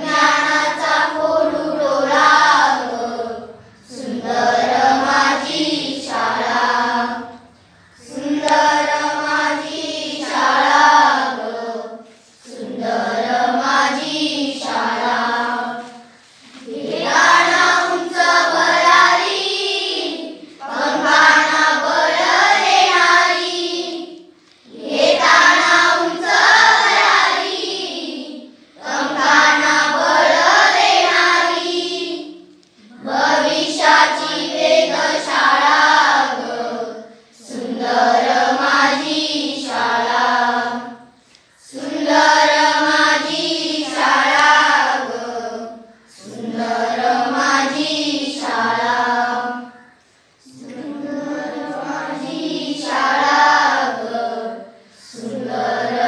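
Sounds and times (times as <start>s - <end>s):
children singing together: 0.0s - 56.0s.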